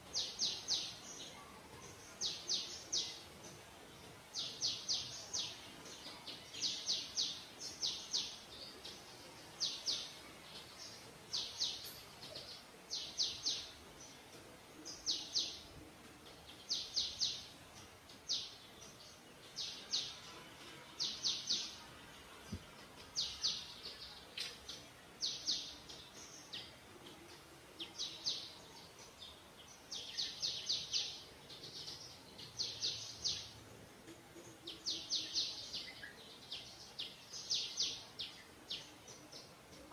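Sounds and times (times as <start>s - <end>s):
bird chirping: 0.0s - 39.9s.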